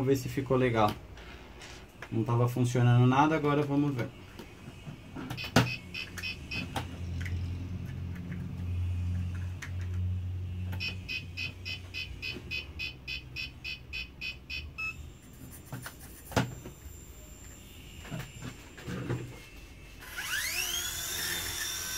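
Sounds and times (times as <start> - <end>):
rapid electronic beeping: 5.4 - 6.8, 10.8 - 15.1
toy helicopter motor humming: 19.3 - 21.9.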